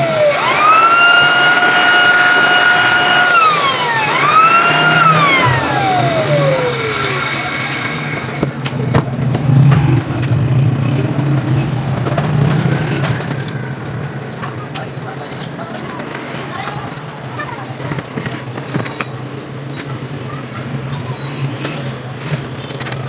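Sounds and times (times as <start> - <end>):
power tool motor whining: 0.0 - 8.6.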